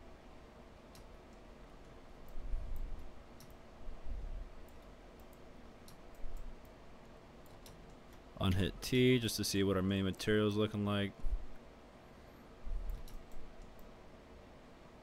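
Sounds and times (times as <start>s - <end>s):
mouse and keyboard clicks: 12.9s - 13.9s.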